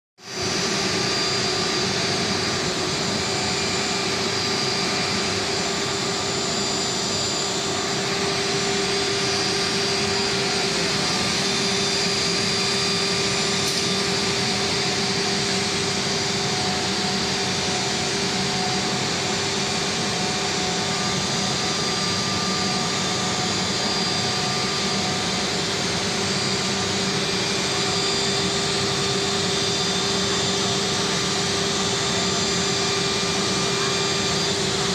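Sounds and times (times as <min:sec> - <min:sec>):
router machine humming: 0:00.3 - 0:19.3.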